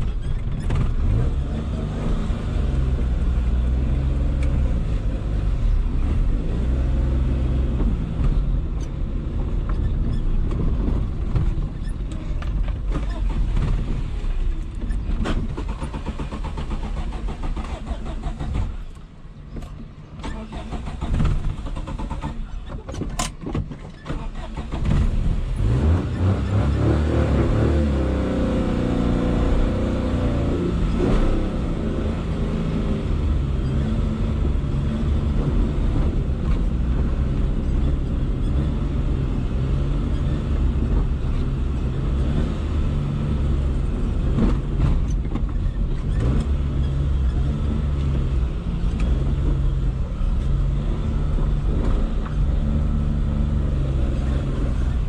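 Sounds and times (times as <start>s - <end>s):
car engine running: 23.6s - 55.0s.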